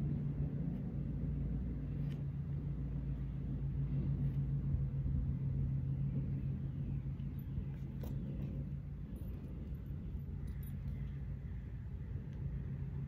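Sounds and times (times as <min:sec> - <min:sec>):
low mechanical hum: 0:00.0 - 0:13.0
low rumble: 0:00.0 - 0:13.0.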